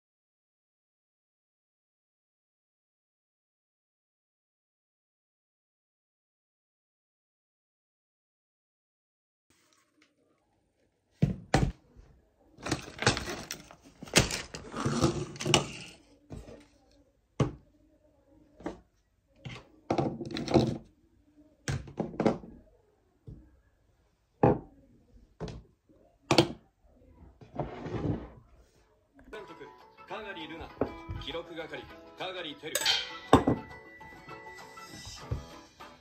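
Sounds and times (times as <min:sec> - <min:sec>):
objects knocking on wooden desk: 0:33.3 - 0:33.7.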